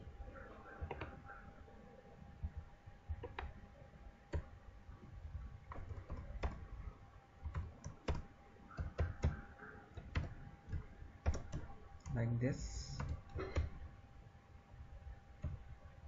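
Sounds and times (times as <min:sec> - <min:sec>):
faint steady hum: 0:00.0 - 0:16.0
keyboard keystroke clicks: 0:00.8 - 0:01.2, 0:02.4 - 0:03.6, 0:05.7 - 0:06.7, 0:07.4 - 0:12.2, 0:12.9 - 0:13.8, 0:15.4 - 0:15.7.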